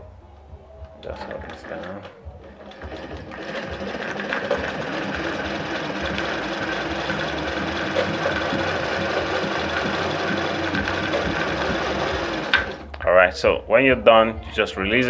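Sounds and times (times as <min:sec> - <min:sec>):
sewing machine winding bobbin: 0:01.2 - 0:12.9.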